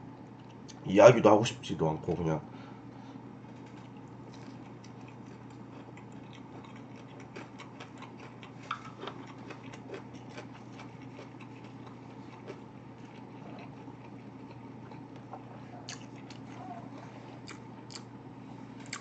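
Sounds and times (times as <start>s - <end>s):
steady low hum: 0.0s - 19.0s
person chewing food: 3.5s - 18.2s.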